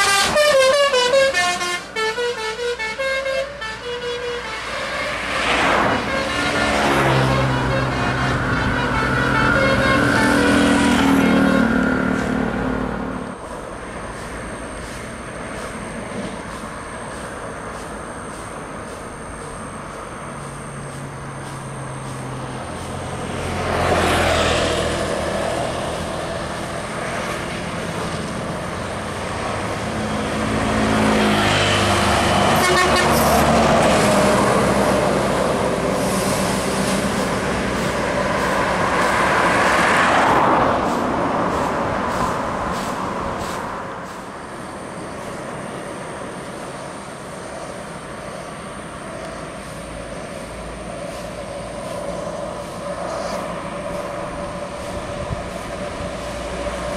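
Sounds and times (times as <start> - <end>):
vehicle horn: 0.0 - 13.3, 32.4 - 34.2
coaches passing at speed: 4.5 - 19.7, 20.6 - 56.9.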